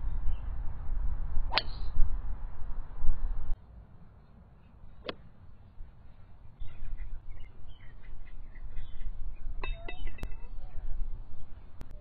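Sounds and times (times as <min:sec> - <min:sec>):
low wind rumble: 0:00.0 - 0:12.0
birds chirping: 0:04.2 - 0:12.0.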